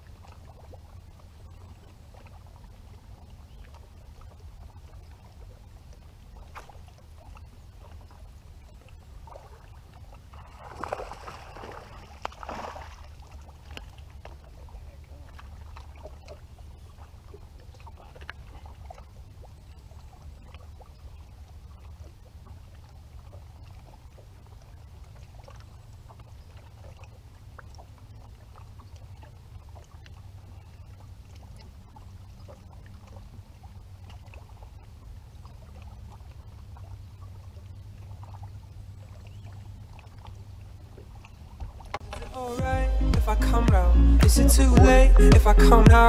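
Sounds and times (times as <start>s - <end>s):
small splashes: 0.0s - 42.6s
water lapping against boat hull: 0.0s - 46.0s
low steady rumble: 13.0s - 46.0s.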